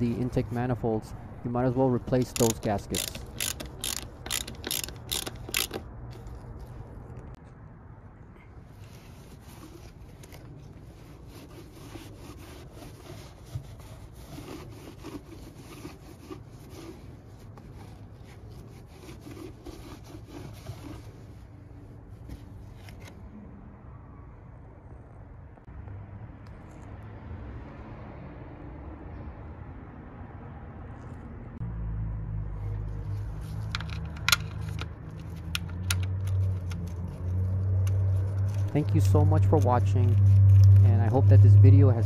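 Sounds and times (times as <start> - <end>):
metal parts scraping: 2.2 - 6.3
small metal clicks: 2.3 - 5.8.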